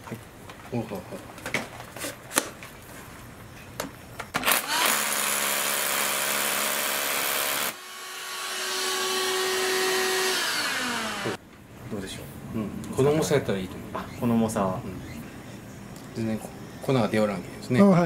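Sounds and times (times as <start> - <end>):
hammer drill drilling concrete: 4.4 - 11.4.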